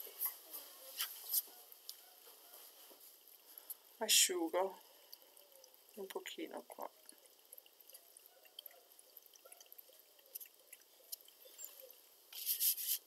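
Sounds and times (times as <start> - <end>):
faint small ticks: 3.3 - 3.9, 7.1 - 12.0.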